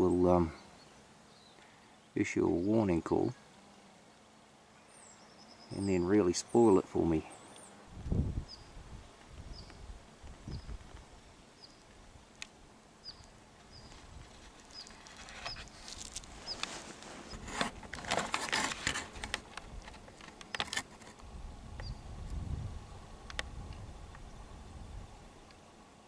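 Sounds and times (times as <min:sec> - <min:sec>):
dry grass and clothing rustling: 0:07.8 - 0:24.5.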